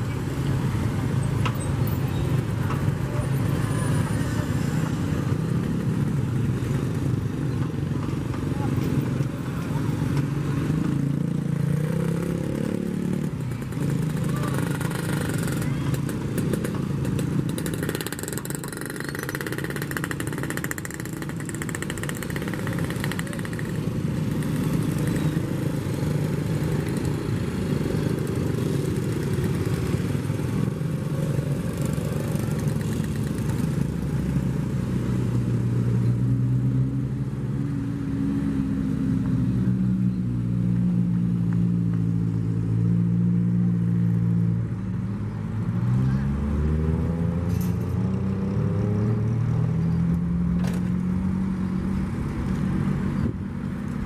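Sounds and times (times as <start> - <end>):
motorbikes going by: 0.0 - 54.0
motorbike revving up: 10.3 - 34.5.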